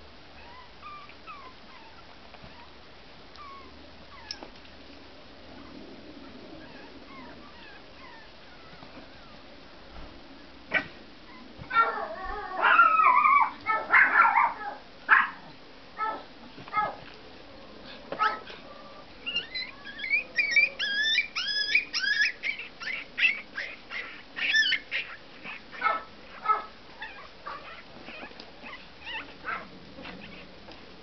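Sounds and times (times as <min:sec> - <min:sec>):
small dogs yelping: 0:00.4 - 0:02.8, 0:03.4 - 0:04.4, 0:06.6 - 0:09.4, 0:10.7 - 0:17.1, 0:18.2 - 0:30.8
dogs yipping and barking: 0:06.6 - 0:09.4, 0:10.7 - 0:17.1, 0:18.1 - 0:30.6.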